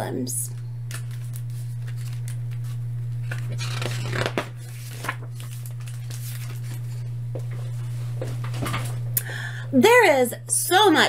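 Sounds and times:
steady low hum: 0.0 - 11.0
book pages turning: 0.9 - 9.0.

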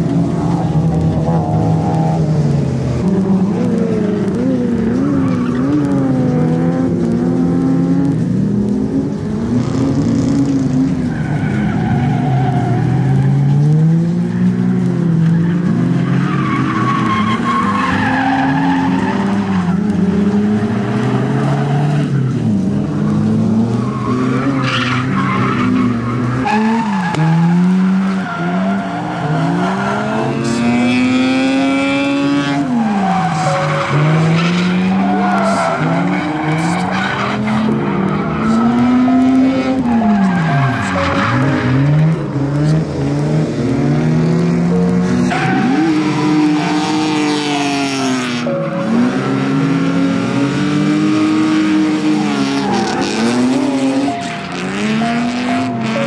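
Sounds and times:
car engines revving hard: 0.0 - 56.0
tyres squealing: 23.2 - 42.2.

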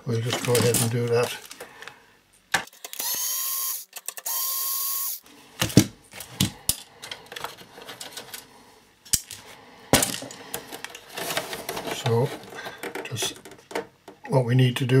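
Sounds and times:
electric screwdriver whirring: 2.8 - 5.2
clicks and knocks of metal casing: 10.0 - 14.2.

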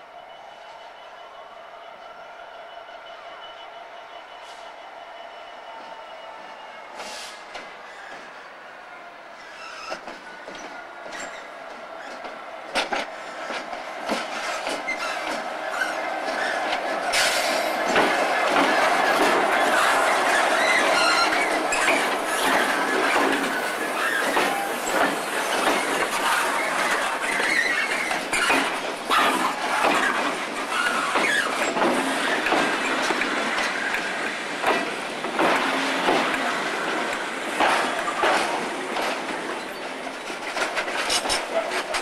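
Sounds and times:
diesel locomotives passing: 0.0 - 42.0
wagons clattering over rail joints: 9.8 - 42.0
wheel squeal: 19.1 - 32.5.

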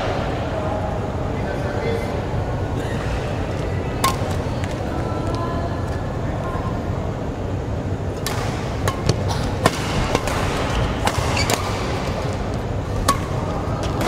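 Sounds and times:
sports hall noise: 0.0 - 14.0
rackets striking shuttlecock: 4.0 - 4.8, 8.2 - 14.0.

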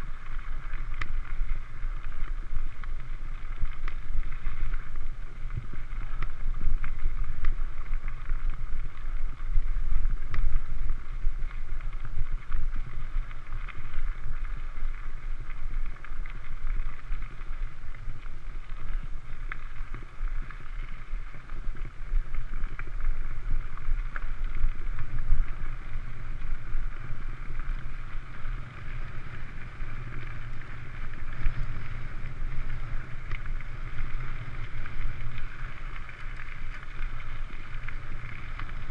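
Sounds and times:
bike tyres on gravel: 0.0 - 38.9
stones ticking and clicking: 0.0 - 38.9
wind rumbling on microphone: 0.0 - 38.9.

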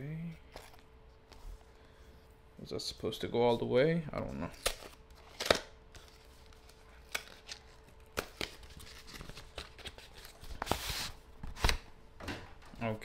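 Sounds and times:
packaging rustling: 4.6 - 11.8.

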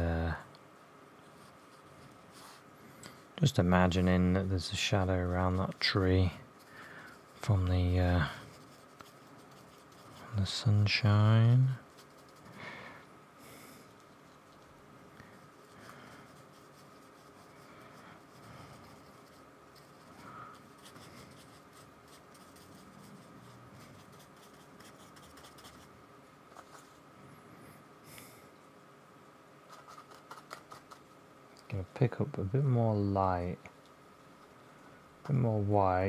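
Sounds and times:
faint steady high hum: 0.0 - 36.0
paintbrush dabbing on paper: 5.2 - 12.6, 15.4 - 25.9.

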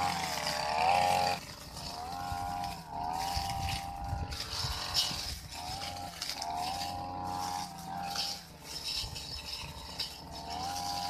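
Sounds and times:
blade swishing through grass: 0.0 - 11.0
brush cutter engine revving: 0.0 - 11.0.

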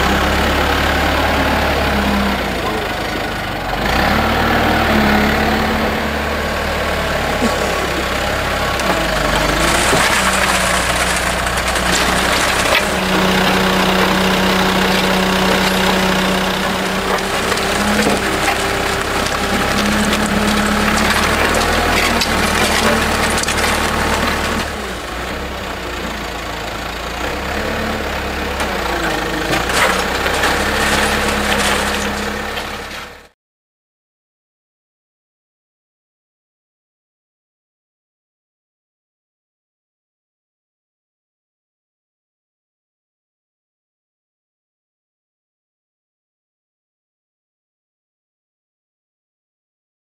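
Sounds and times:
diesel engine running: 0.0 - 33.4
wet concrete pouring: 7.2 - 25.3, 28.1 - 33.2.

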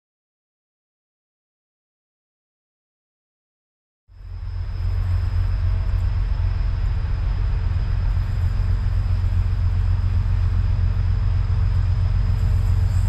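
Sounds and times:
train rumbling past: 4.1 - 13.0.

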